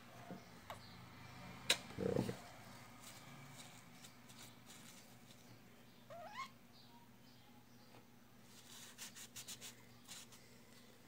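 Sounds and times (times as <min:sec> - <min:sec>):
muffled paper rustle: 0:02.9 - 0:05.5.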